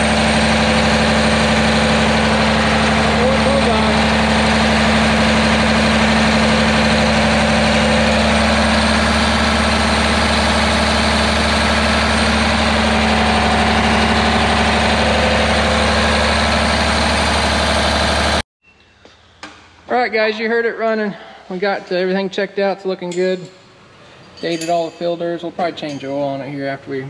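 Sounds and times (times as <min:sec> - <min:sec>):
diesel engine running: 0:00.0 - 0:18.4.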